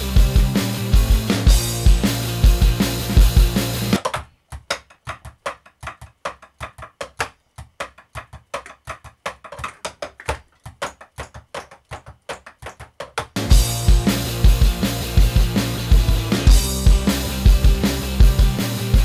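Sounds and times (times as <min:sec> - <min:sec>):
drum kit music: 0:00.0 - 0:19.0
drumsticks tapping drum pads: 0:04.0 - 0:13.5.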